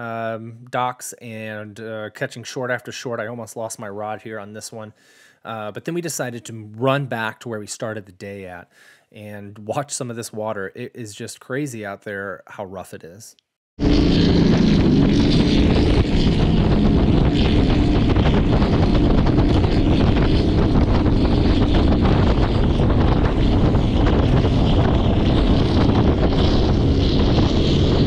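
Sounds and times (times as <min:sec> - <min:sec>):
outboard engine drone: 0:13.8 - 0:28.0
wind buffeting microphone: 0:13.8 - 0:28.0.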